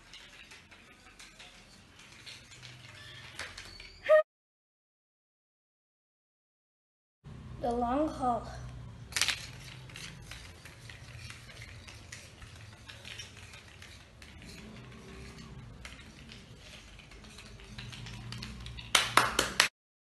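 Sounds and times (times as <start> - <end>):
cards clattering: 9.1 - 15.2
cards toppling like dominoes: 9.1 - 19.7.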